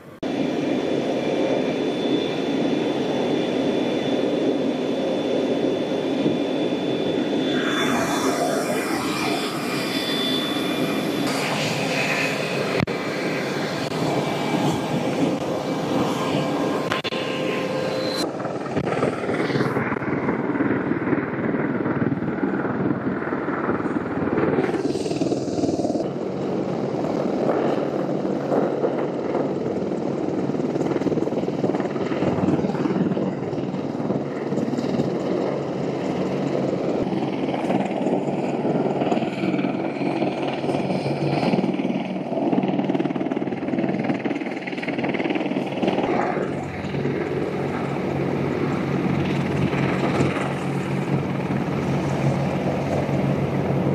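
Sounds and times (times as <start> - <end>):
helicopters droning: 0.0 - 53.9.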